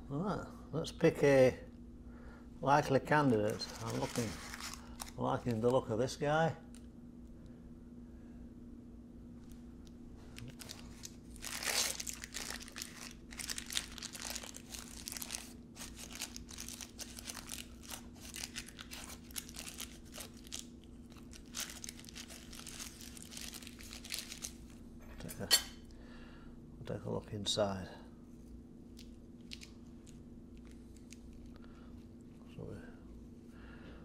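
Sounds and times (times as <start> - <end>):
paper muffin case crinkling: 2.8 - 6.2, 10.2 - 24.8.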